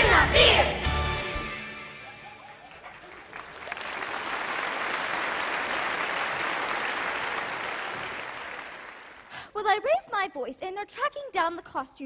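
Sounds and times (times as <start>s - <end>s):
crowd applauding: 2.2s - 9.4s.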